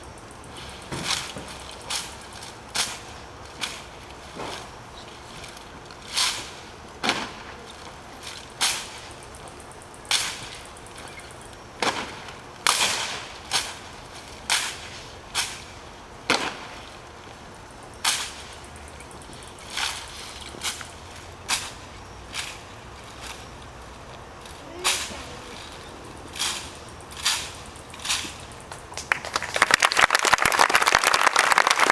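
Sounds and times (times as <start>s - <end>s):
rifle butts striking pavement: 7.0s - 7.6s, 11.8s - 13.8s, 16.2s - 16.8s.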